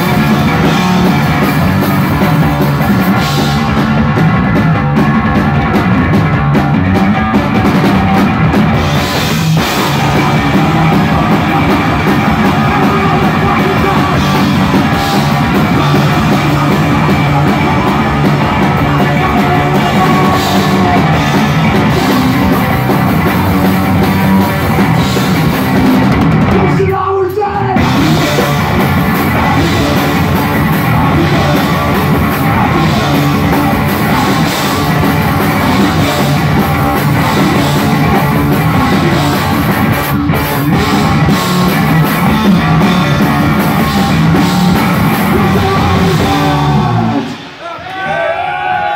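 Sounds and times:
electric bass guitar: 0.0 - 47.6
drum kit: 0.0 - 48.9
live punk rock: 0.0 - 48.9
person singing: 9.7 - 22.8, 26.5 - 39.6, 42.3 - 47.8.

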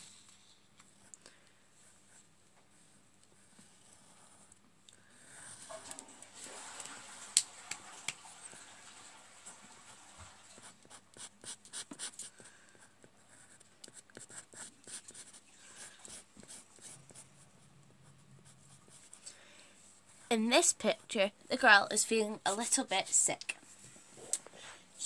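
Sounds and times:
pencil scratching on paper: 9.8 - 19.3.

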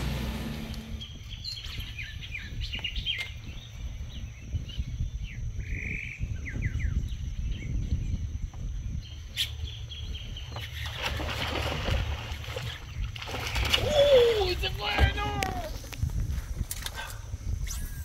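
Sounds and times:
birds chirping and calling: 0.8 - 8.2, 8.9 - 13.2.

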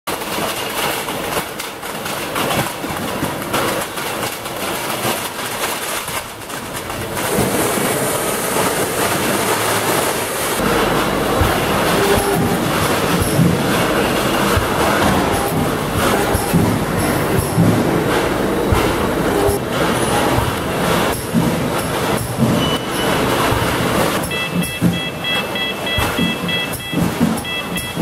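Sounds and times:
metal cans clattering: 0.1 - 19.0
running machinery: 0.1 - 28.0.

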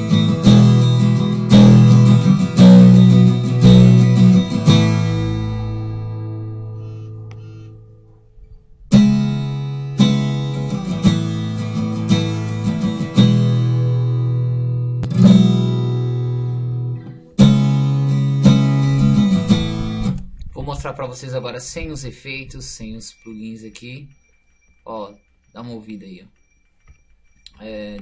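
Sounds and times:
acoustic guitar chords strummed: 0.0 - 20.4.

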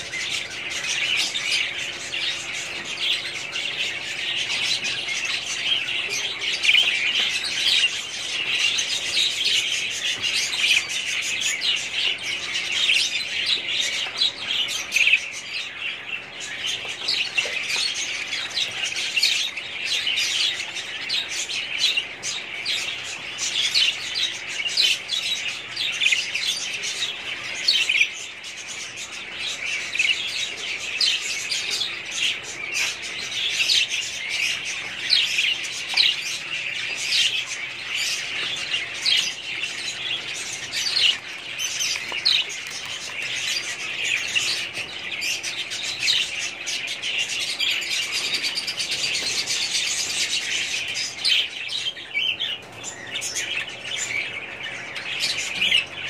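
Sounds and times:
budgerigars chattering and chirping: 0.0 - 56.0.

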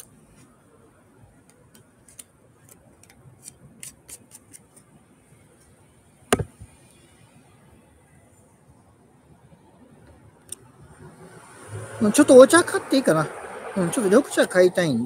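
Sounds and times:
thump: 6.3 - 6.8.

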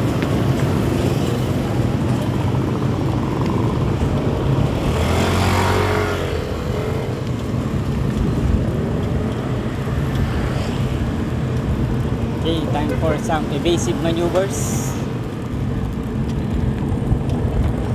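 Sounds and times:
small motorcycle passing: 0.0 - 12.2
bicycle road rumble: 0.0 - 17.9
wind on microphone: 0.0 - 17.9.

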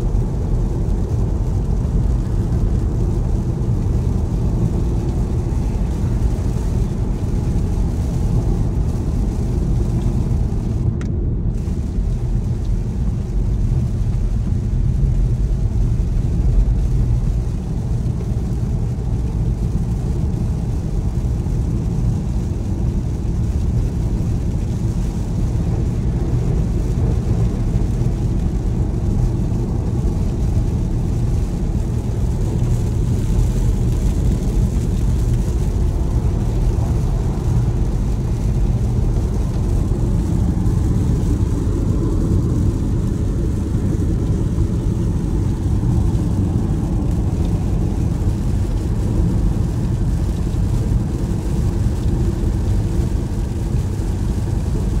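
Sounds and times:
car cabin road rumble: 0.0 - 55.0.

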